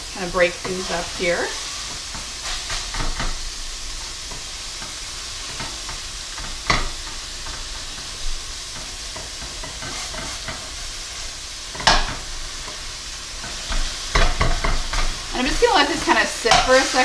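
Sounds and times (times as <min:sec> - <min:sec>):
meat sizzling in a skillet: 0:00.0 - 0:17.0
metal spatula scraping a pan: 0:00.2 - 0:03.5, 0:04.3 - 0:17.0.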